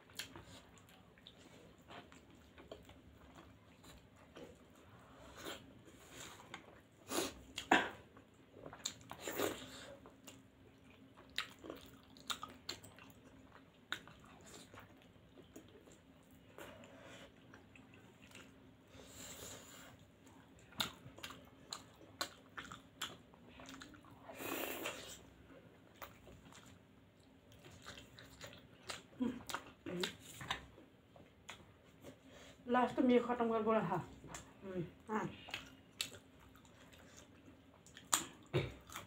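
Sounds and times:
close chewing and biting: 0.0 - 6.8, 8.5 - 18.6, 19.9 - 24.3, 24.9 - 30.8, 35.4 - 39.0.

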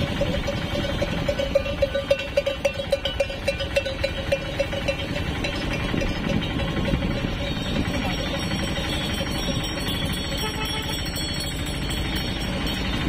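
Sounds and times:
cattle bells clanking: 0.0 - 13.0.

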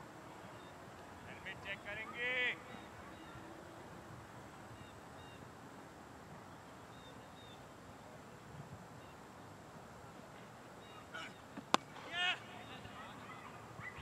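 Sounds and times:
steady low hiss: 0.0 - 14.0
faint bird chirps: 0.4 - 3.8, 4.5 - 5.5, 6.4 - 8.2, 10.8 - 11.6.

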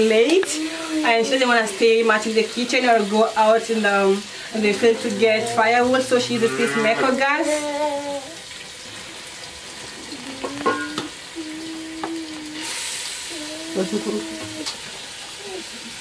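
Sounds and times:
chicken sizzling in a hot pot: 8.4 - 16.0.

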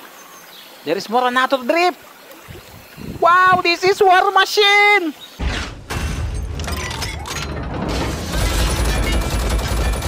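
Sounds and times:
rapid gunfire: 8.2 - 10.0.

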